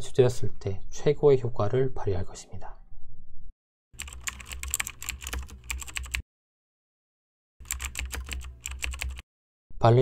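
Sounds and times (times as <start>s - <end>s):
keyboard typing: 4.0s - 6.2s, 7.6s - 9.2s.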